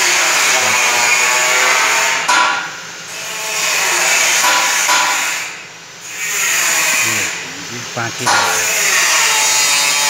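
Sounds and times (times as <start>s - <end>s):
loud whirring machine: 0.0s - 10.0s.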